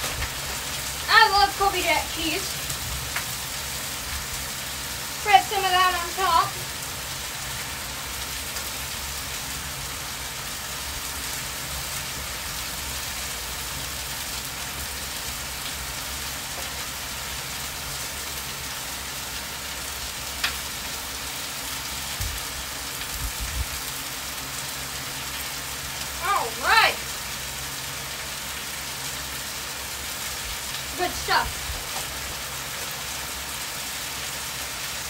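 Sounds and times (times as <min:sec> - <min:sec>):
food sizzling on a griddle: 0:00.0 - 0:35.0.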